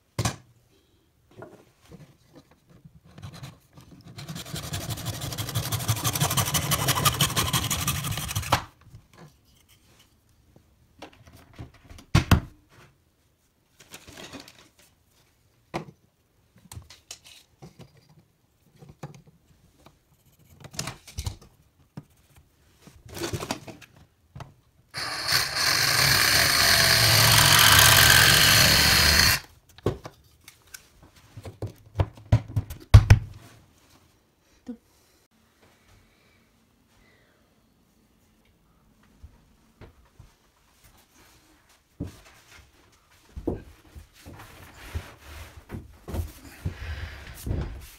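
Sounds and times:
hand saw rasping on plastic: 4.1s - 8.5s, 25.0s - 29.4s
power tool cutting: 5.4s - 8.5s, 25.0s - 29.5s.

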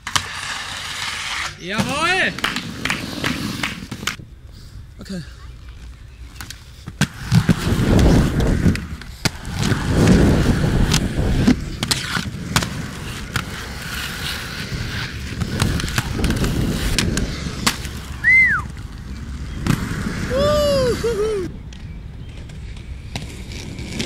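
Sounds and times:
skates clacking on ramp coping: 0.0s - 4.2s, 6.4s - 18.8s
skate wheels rolling on concrete: 0.0s - 24.0s.

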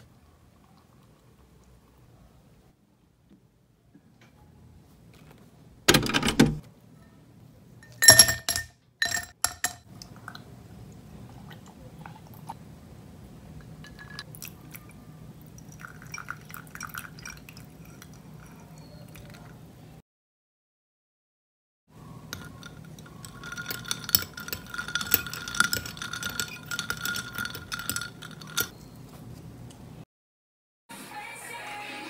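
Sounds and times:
glass ringing: 7.8s - 9.8s, 22.3s - 28.8s
liquid pouring over ice: 15.4s - 19.4s
ice cubes clattering into glass: 22.4s - 28.7s.

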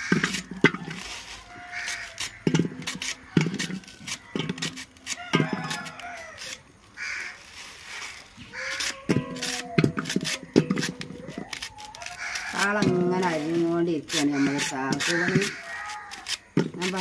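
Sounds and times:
knife cutting stalks: 0.0s - 6.6s, 8.0s - 17.0s.

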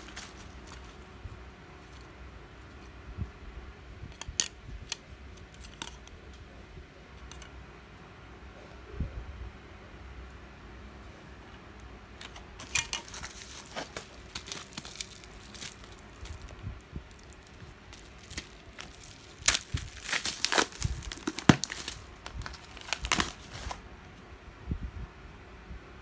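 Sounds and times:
plastic bubble wrap crinkling: 0.0s - 1.2s, 12.2s - 23.8s.

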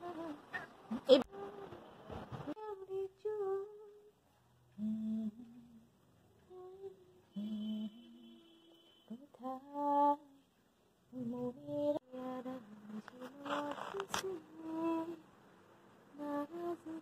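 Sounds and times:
person humming a slow melody: 0.0s - 0.6s, 4.7s - 10.2s, 16.1s - 17.0s.

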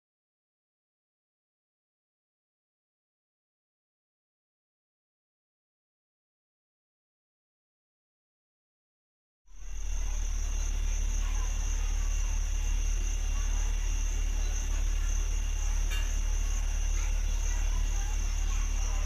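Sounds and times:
insects droning: 9.5s - 19.0s
low hum: 9.5s - 19.0s.

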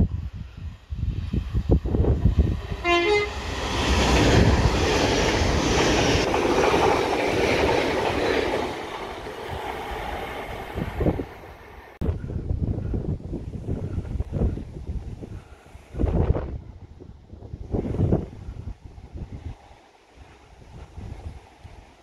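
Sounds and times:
wind buffeting microphone: 0.0s - 22.0s
train passing at speed: 0.1s - 22.0s
two-note train horn: 2.8s - 3.4s.

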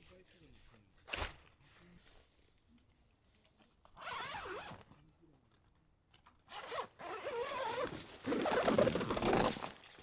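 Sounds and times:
zipper being pulled: 4.0s - 4.8s, 6.5s - 9.6s.

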